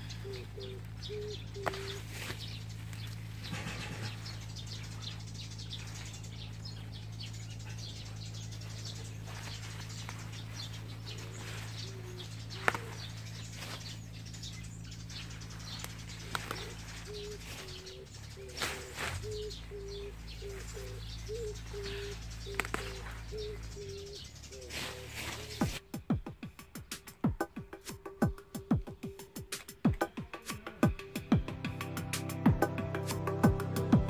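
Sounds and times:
dove cooing: 0:00.0 - 0:14.0, 0:15.0 - 0:26.3
steady low hum: 0:00.0 - 0:25.8
leaves rustling: 0:00.0 - 0:26.0.

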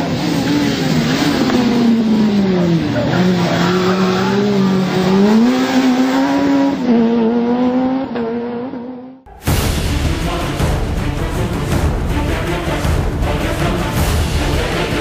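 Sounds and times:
rally car engine revving hard: 0:00.0 - 0:09.2.

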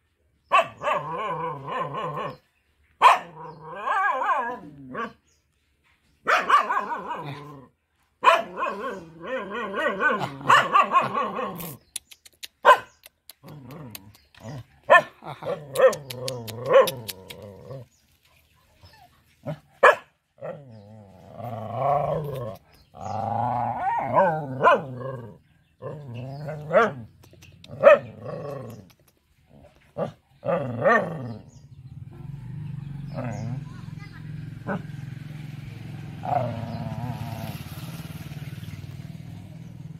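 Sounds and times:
dog barking: 0:00.5 - 0:02.4, 0:03.0 - 0:05.2, 0:06.2 - 0:07.5, 0:08.2 - 0:11.6, 0:12.6 - 0:13.0, 0:14.8 - 0:17.1, 0:19.5 - 0:20.6, 0:23.9 - 0:25.0, 0:27.8 - 0:28.2.

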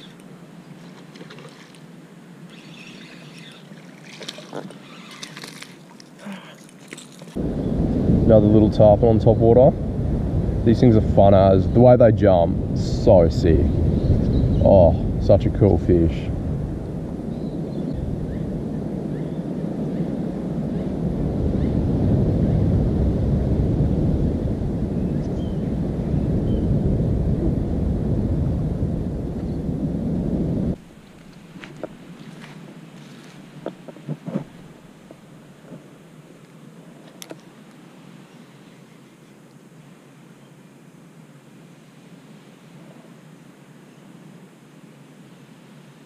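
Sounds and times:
fishing reel reeling in: 0:02.5 - 0:05.8
fish splashing at water surface: 0:02.6 - 0:07.4
wind buffeting microphone: 0:07.3 - 0:32.3.

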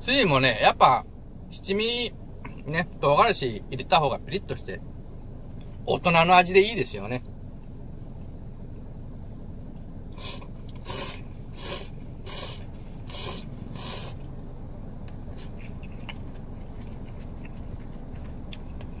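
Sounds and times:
steady low hum: 0:00.0 - 0:19.0
noodles slurped: 0:10.2 - 0:14.2.

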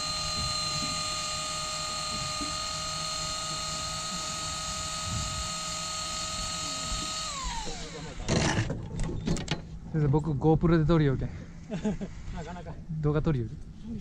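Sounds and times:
fishing reel motor whine: 0:00.0 - 0:08.4.

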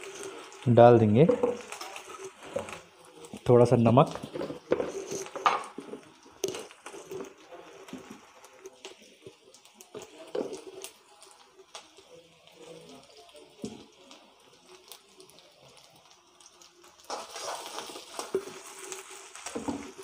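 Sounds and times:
steel ladle scraping a pan: 0:04.2 - 0:07.4, 0:17.1 - 0:19.9.

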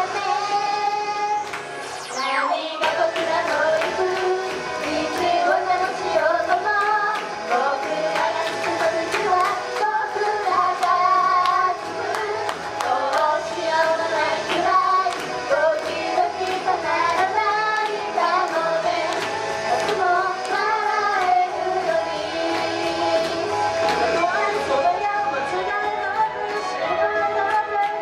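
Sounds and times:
pop backing track with beat: 0:00.0 - 0:28.0
women singing into microphones: 0:02.3 - 0:28.0.

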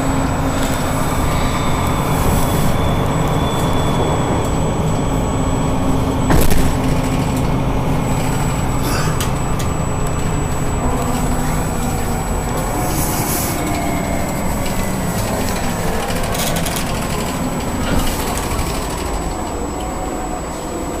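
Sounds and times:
bus engine and road noise: 0:00.0 - 0:21.0
faint whine sinking in pitch: 0:00.0 - 0:21.0
rattles: 0:06.2 - 0:19.9.

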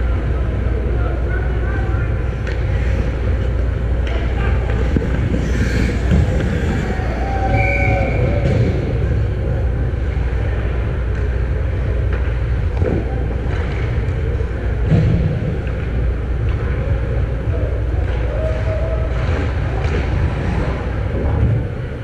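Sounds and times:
low rumble of ice rink: 0:00.0 - 0:22.0
skates on ice: 0:02.4 - 0:09.3.

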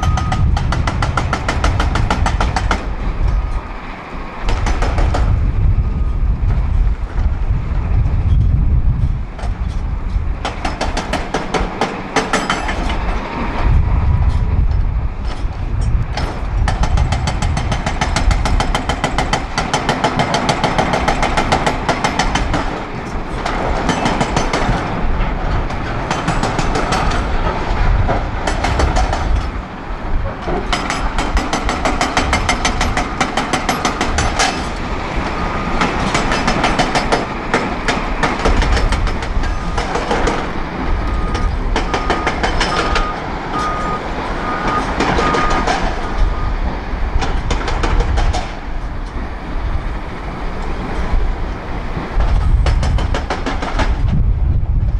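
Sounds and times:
short high beeps: 0:00.0 - 0:00.5, 0:41.0 - 0:45.7
hydraulic breaker hammering rock: 0:00.0 - 0:03.5, 0:04.4 - 0:05.4, 0:10.4 - 0:13.0, 0:16.1 - 0:29.6, 0:30.3 - 0:34.8, 0:35.6 - 0:44.0, 0:44.6 - 0:46.3, 0:47.2 - 0:48.7, 0:52.2 - 0:54.1
excavator diesel engine running: 0:00.0 - 0:54.9.

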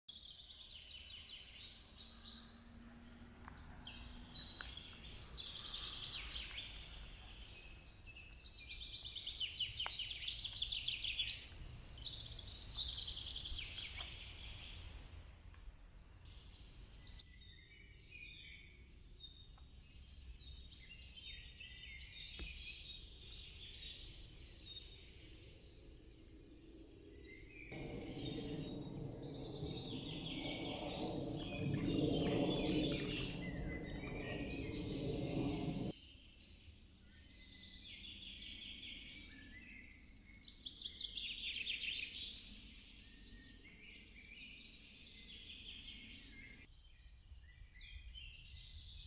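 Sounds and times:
songbirds singing: 0:00.1 - 0:49.0
low steady rumble: 0:27.8 - 0:35.9.

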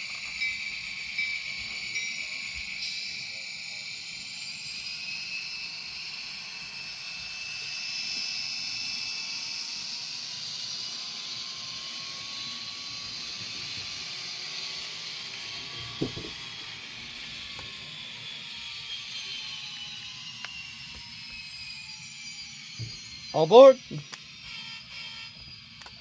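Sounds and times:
model train diesel engine sound: 0:00.0 - 0:05.7.

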